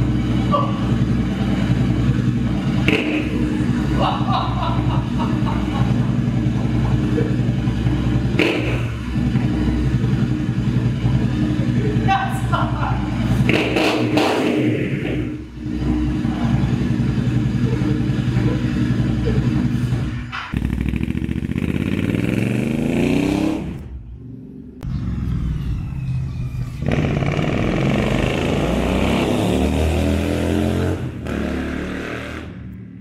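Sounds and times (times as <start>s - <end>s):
motorcycle engine idling: 0.0s - 13.6s, 15.2s - 22.3s
motorcycle accelerating away: 0.0s - 33.0s.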